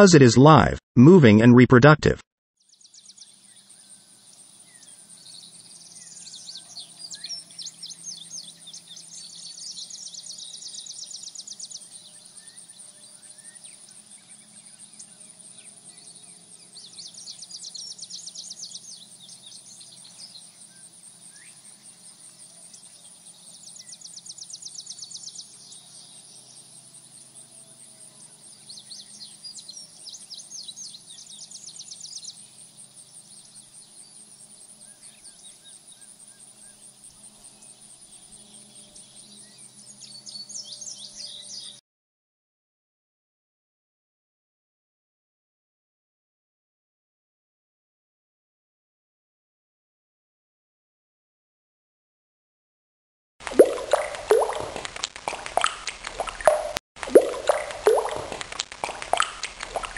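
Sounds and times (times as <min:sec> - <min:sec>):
birds singing high trills: 0:04.4 - 0:41.8.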